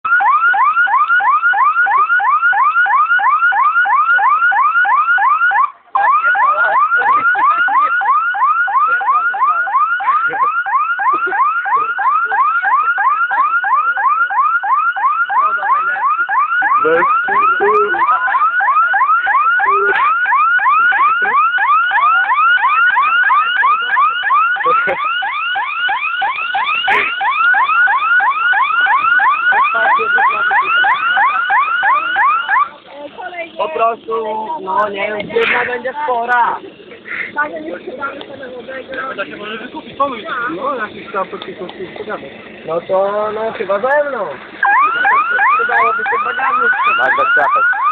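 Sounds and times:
electronic alarm siren yelping: 0:00.0 - 0:32.8, 0:44.6 - 0:47.9.

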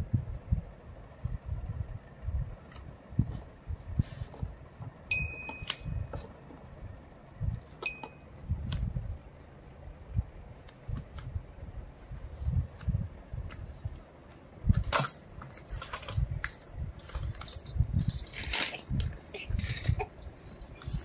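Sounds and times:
toy xylophone notes: 0:05.1 - 0:06.1, 0:07.8 - 0:08.3.

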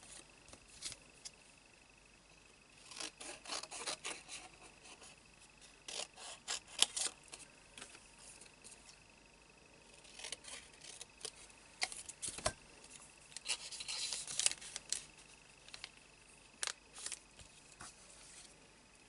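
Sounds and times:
plastic sleeve rustling: 0:13.4 - 0:15.1.

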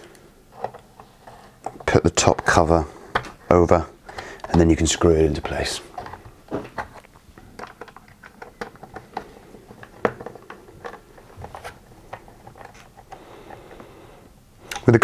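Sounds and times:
plastic parts clicking: 0:04.0 - 0:13.2.

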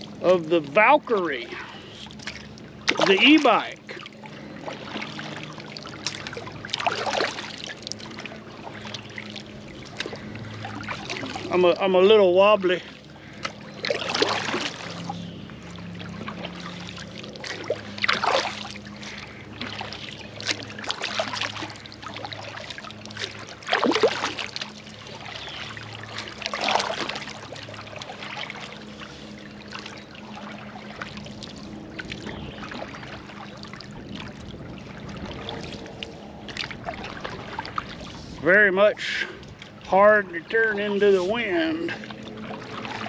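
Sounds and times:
kayak paddle strokes splashing: 0:00.0 - 0:43.0
water dripping off paddle: 0:04.8 - 0:11.9.

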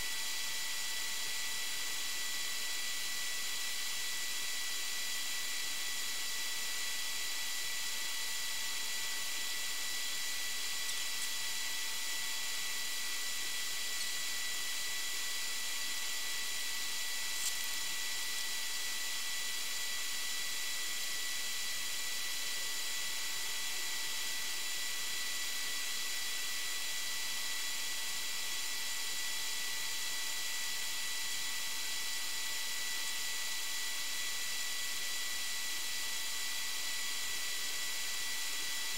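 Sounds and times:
faint high-pitched whines: 0:06.9 - 0:23.4.

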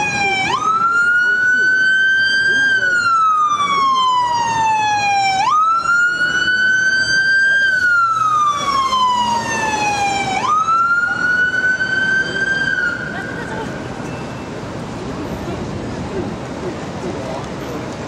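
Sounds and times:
electronic siren wailing: 0:00.0 - 0:13.0.

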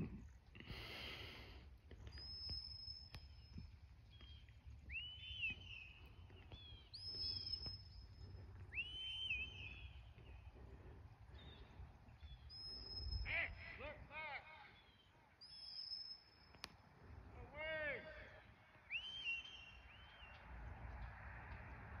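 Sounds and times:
distant shepherd's whistle: 0:08.7 - 0:09.9, 0:18.9 - 0:20.4.

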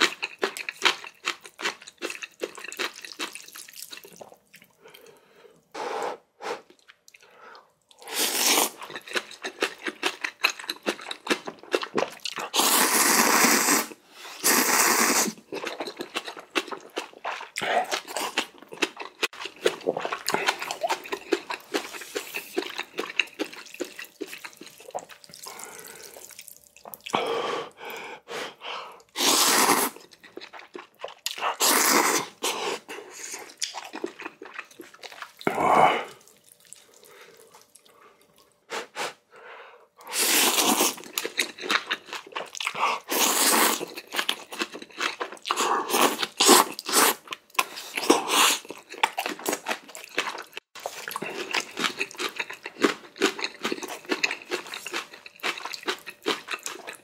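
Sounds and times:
wet chewing and lip smacks: 0:00.0 - 0:05.1, 0:15.5 - 0:27.1, 0:33.1 - 0:35.5, 0:36.2 - 0:38.6, 0:46.2 - 0:57.0
noodles being slurped: 0:08.0 - 0:27.1, 0:29.1 - 0:37.9, 0:40.0 - 0:57.0.

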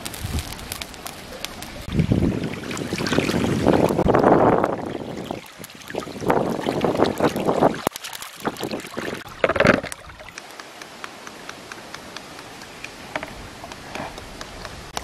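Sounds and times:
water splashing and sloshing: 0:00.0 - 0:15.0.

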